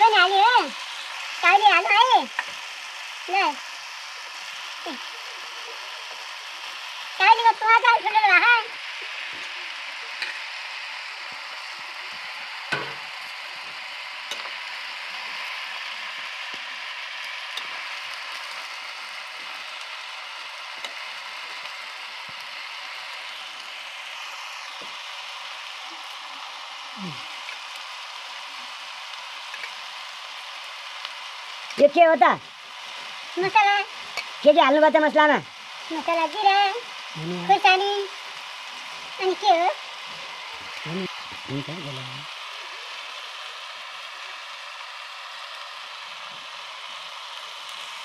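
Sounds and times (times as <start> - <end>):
vegetables sizzling in hot oil: 0.0 - 48.0
spatula striking pan: 12.7 - 13.1.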